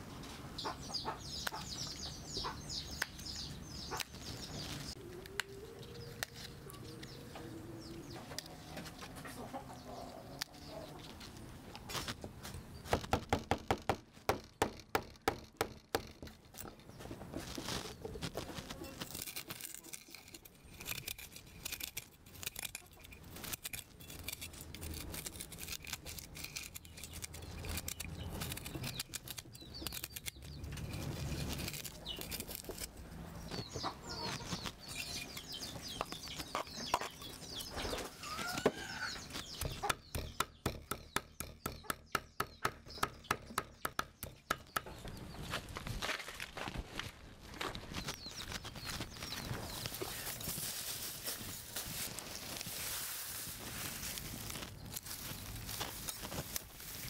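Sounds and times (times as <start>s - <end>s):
chickens clucking: 0.2s - 3.0s, 4.7s - 11.7s, 33.2s - 40.2s
cleaver chopping on wooden block: 39.6s - 44.9s.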